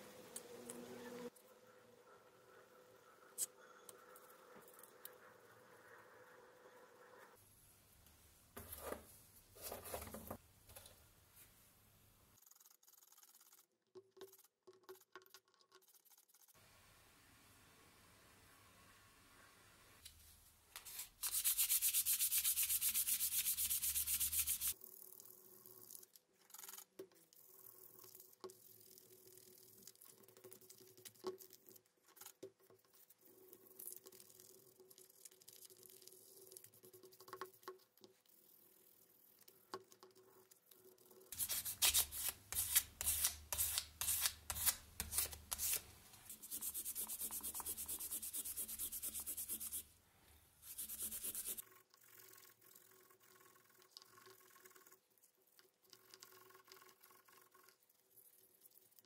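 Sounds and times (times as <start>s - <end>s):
sandpaper rubbing on metal: 20.8s - 24.7s, 41.4s - 49.8s, 50.6s - 51.6s.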